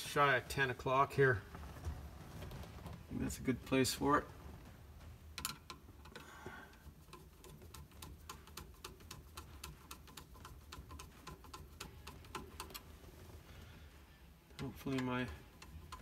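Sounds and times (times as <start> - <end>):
screwdriver ratchet clicks: 6.8 - 12.8, 14.6 - 16.0.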